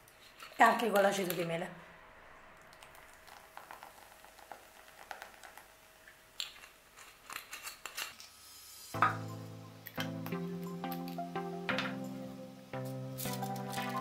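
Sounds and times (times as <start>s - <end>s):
batter fizzing and popping: 2.6s - 8.4s.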